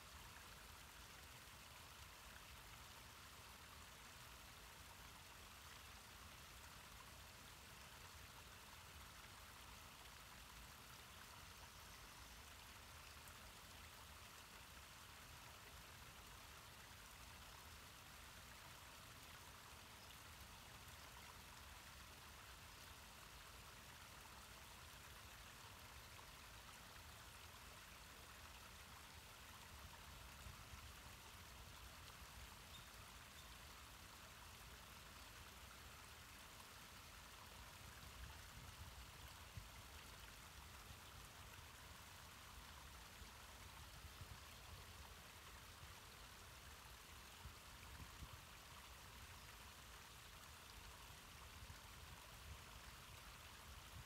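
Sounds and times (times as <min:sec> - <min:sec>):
small waterfall rushing: 0:00.0 - 0:54.0.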